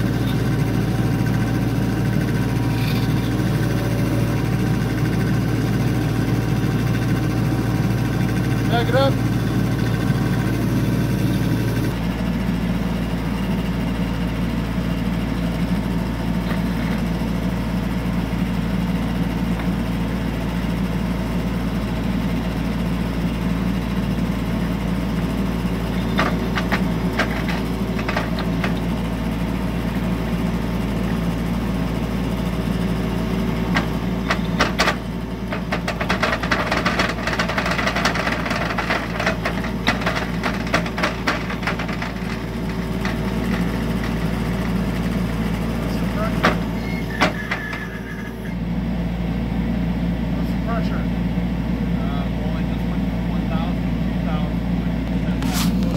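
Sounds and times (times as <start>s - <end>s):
excavator diesel engine running: 0.0s - 55.9s
rapid clicks and knocks: 26.0s - 29.0s, 33.7s - 44.8s, 46.2s - 47.7s.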